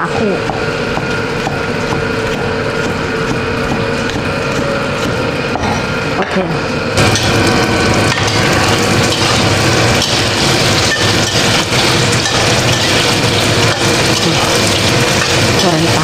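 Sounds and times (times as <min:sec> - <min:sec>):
tofu sizzling in hot oil: 0:07.0 - 0:16.0
metal spatula scraping a wok: 0:08.1 - 0:16.0.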